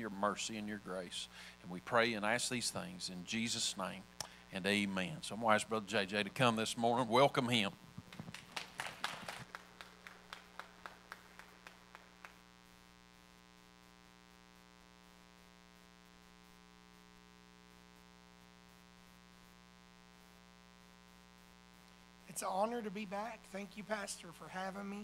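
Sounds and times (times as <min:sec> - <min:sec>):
faint electrical hum with buzz: 0:00.0 - 0:25.0
applause: 0:08.0 - 0:12.5.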